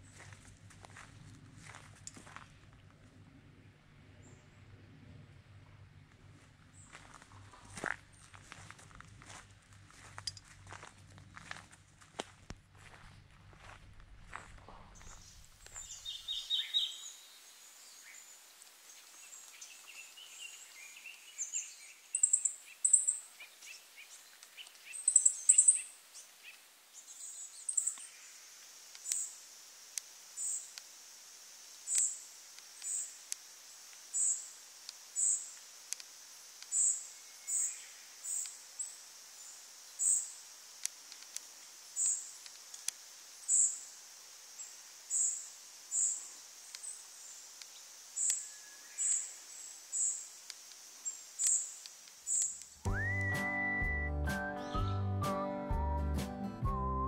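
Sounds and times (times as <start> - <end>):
faint high hiss: 15.0 - 52.9.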